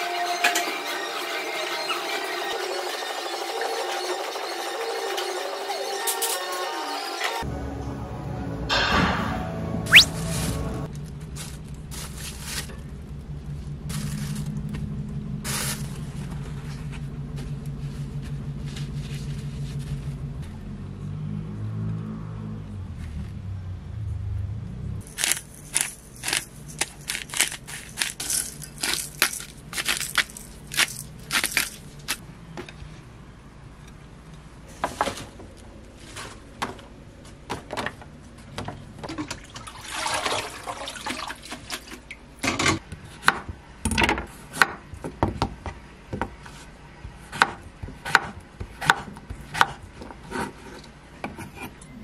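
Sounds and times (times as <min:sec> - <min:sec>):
tap water running: 0:39.0 - 0:42.1.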